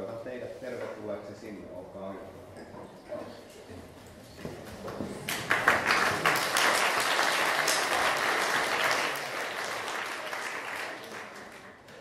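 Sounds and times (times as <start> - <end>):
audience applauding: 5.2 - 12.0.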